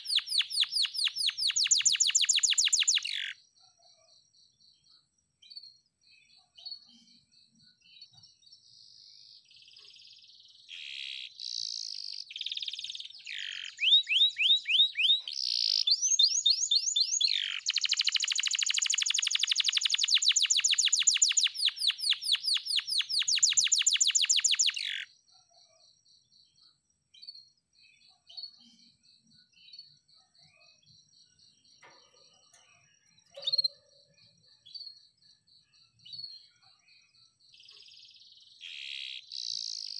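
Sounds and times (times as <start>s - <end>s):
canary singing: 0.0s - 3.4s, 10.7s - 25.1s, 31.8s - 34.9s, 37.6s - 39.9s
faint bird chirps: 0.0s - 39.9s.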